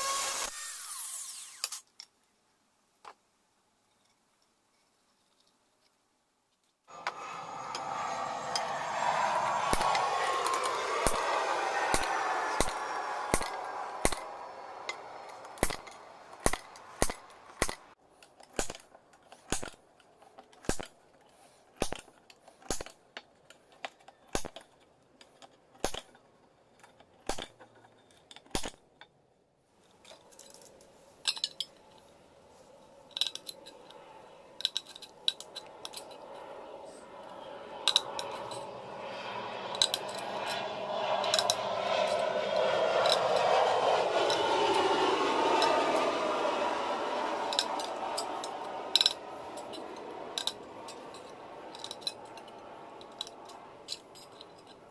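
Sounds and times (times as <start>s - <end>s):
loud rushing noise with gliding tones: 6.9s - 18.0s, 33.1s - 54.7s.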